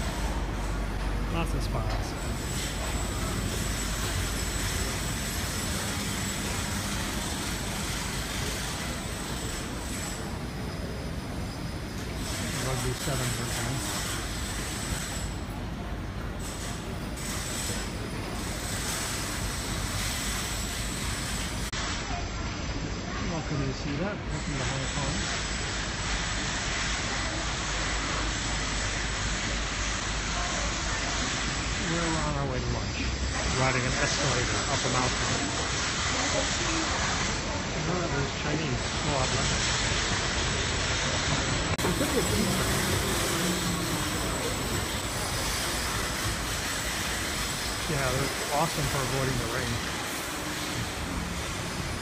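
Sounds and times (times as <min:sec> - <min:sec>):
city traffic noise: 0:00.0 - 0:52.0
escalator rumbling and hissing: 0:00.0 - 0:52.0
faint voices: 0:27.0 - 0:52.0
escalator humming: 0:41.1 - 0:52.0.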